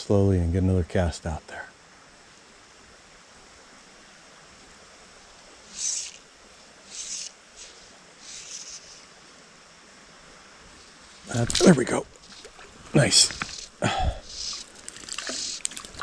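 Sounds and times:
small creek rushing: 1.3s - 16.0s
short hissing swishes: 5.7s - 9.2s, 10.8s - 15.8s.

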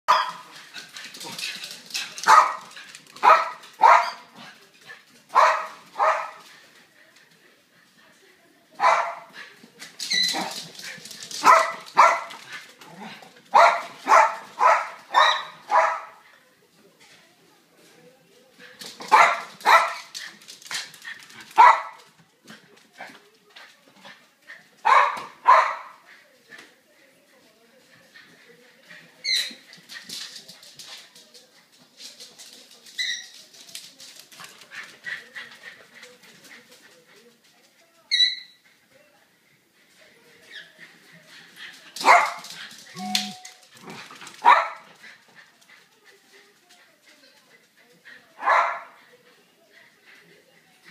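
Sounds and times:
dog barking: 0.1s - 0.5s, 2.3s - 4.3s, 5.4s - 6.4s, 8.8s - 9.3s, 11.4s - 12.3s, 13.6s - 16.2s, 19.1s - 20.1s, 21.6s - 22.0s, 24.8s - 26.0s, 42.0s - 42.4s, 44.4s - 44.9s, 48.4s - 49.0s.

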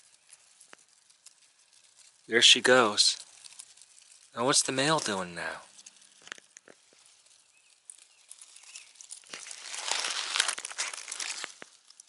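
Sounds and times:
faint ticks: 0.0s - 4.5s
dry leaves rustling and crackling: 0.0s - 12.0s.

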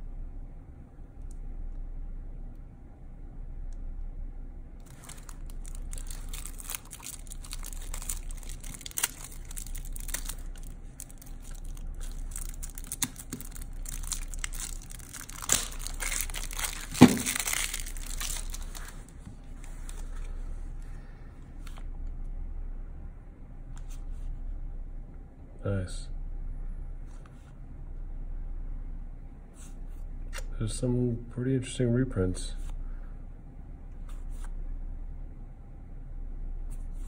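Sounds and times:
cards rustling and sliding: 4.8s - 20.4s.

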